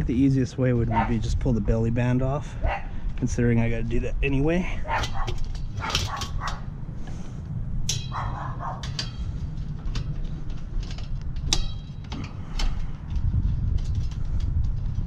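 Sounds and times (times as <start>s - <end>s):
dog barking: 0.9s - 1.2s, 2.6s - 2.9s, 4.8s - 6.7s, 8.1s - 8.9s
screwdriver clicking and scraping: 4.9s - 6.7s, 7.9s - 15.0s.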